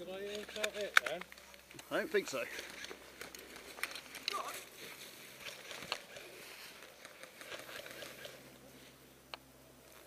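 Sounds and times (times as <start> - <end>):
sharp clicks: 0.3 - 1.9.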